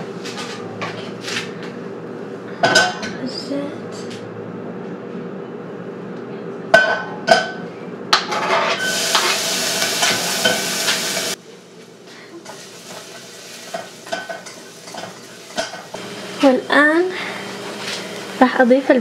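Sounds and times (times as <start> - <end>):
garlic sizzling in hot oil: 8.8 - 11.4, 12.4 - 18.9
spoon stirring and scraping pot: 12.5 - 16.0.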